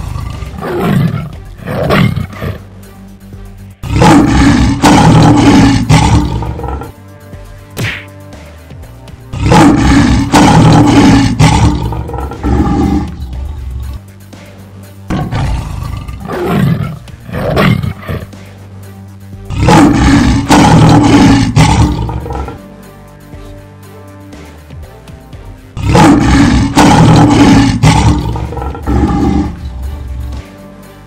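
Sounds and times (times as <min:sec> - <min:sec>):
lion and tiger roaring: 0:00.0 - 0:02.6, 0:03.8 - 0:07.0, 0:09.3 - 0:14.0, 0:15.1 - 0:18.3, 0:19.5 - 0:22.6, 0:25.8 - 0:30.2
background music: 0:00.0 - 0:31.0.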